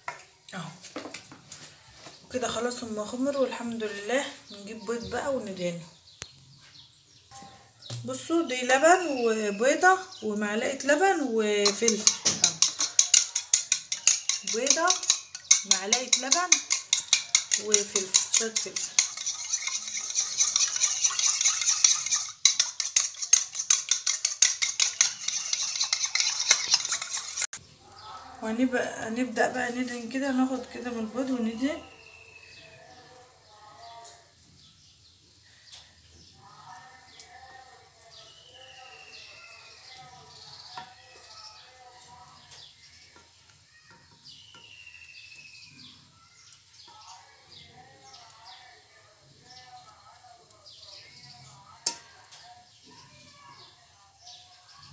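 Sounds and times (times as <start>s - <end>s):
small birds chirping: 0.2s - 54.9s
utensil beating egg in bowl: 9.8s - 27.6s
brush tapping metal pan: 11.1s - 27.6s, 39.2s - 41.4s, 51.8s - 52.4s.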